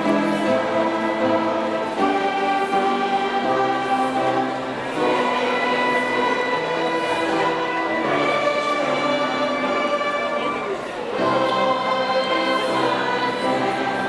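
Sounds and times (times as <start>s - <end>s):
choir singing long notes: 0.0s - 14.0s.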